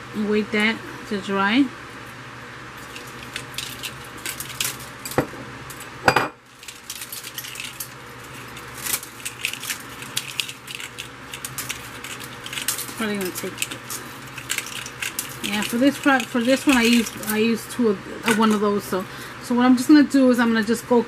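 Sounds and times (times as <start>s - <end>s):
low fan hum: 0.0s - 21.0s
heavy glass knocking on table: 6.1s - 6.4s.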